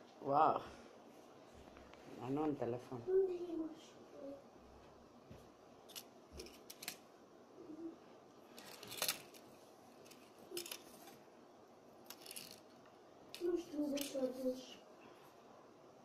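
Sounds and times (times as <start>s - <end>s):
small hard toys rattling: 5.9s - 7.0s, 8.5s - 11.2s, 12.0s - 14.7s.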